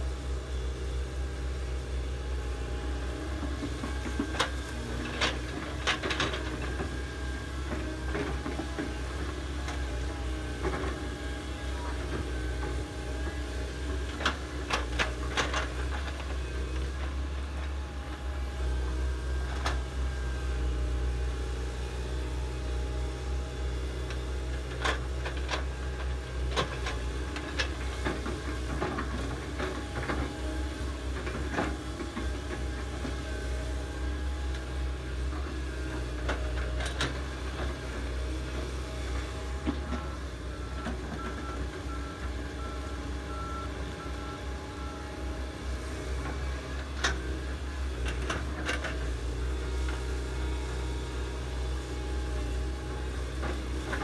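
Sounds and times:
excavator diesel engines: 0.0s - 54.0s.

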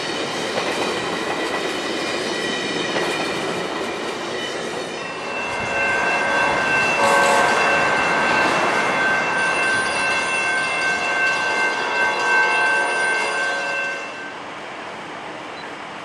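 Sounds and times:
rail noise: 0.0s - 16.0s
locomotive air horn chord: 5.2s - 14.4s.

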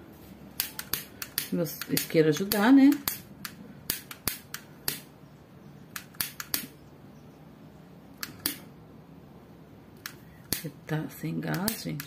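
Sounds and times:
gas lighter clicking: 0.6s - 5.1s, 6.0s - 6.7s, 8.2s - 8.7s, 11.5s - 12.0s.

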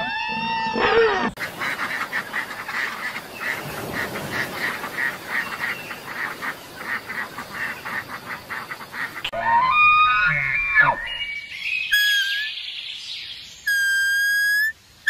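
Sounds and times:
steady hiss: 1.4s - 9.3s.

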